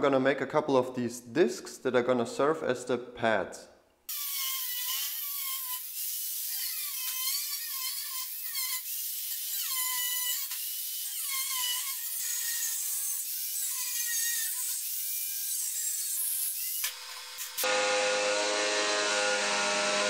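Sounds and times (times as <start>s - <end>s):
angle grinder cutting steel: 4.1s - 20.0s.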